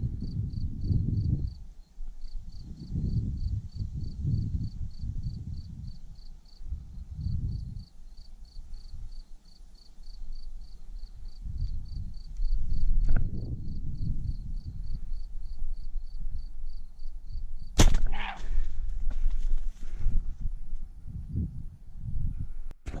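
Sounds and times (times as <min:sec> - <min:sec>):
insect chirping: 0:00.2 - 0:18.5.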